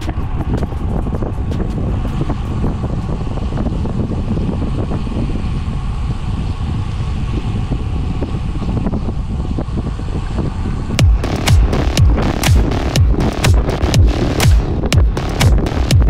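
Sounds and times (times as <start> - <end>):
wind buffeting microphone: 0.0 - 12.4.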